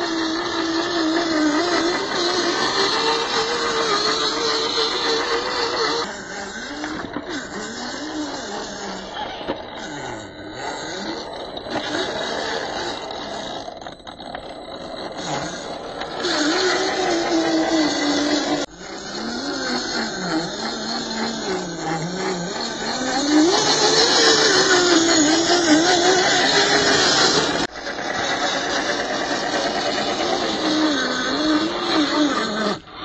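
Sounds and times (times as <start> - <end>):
electric motor and gears whining: 0.0 - 33.0.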